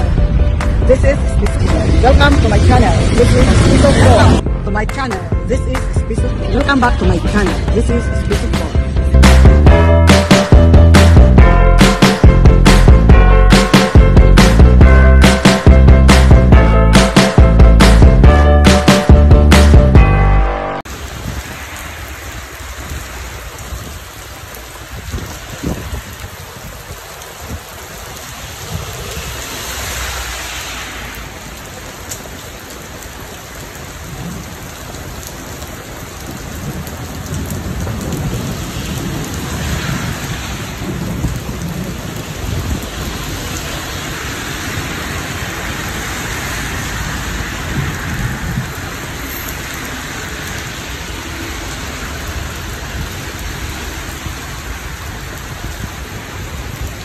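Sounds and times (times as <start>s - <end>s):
thunder rumbling: 0.0s - 4.7s, 33.9s - 46.0s
heavy rain pouring: 0.0s - 57.0s.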